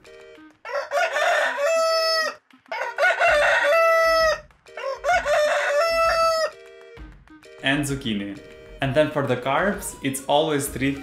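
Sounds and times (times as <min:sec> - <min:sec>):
rooster crowing: 0:00.6 - 0:06.6.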